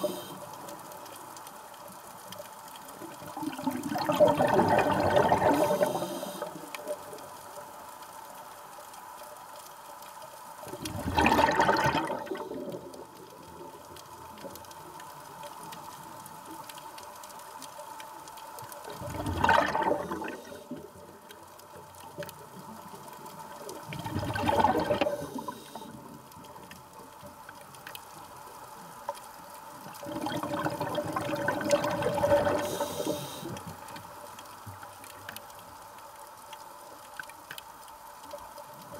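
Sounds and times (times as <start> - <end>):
faint steady hiss: 0.0 - 38.9
gurgling underwater bubbles: 3.1 - 7.1, 10.7 - 13.1, 18.9 - 21.1, 23.8 - 25.9, 29.9 - 33.6.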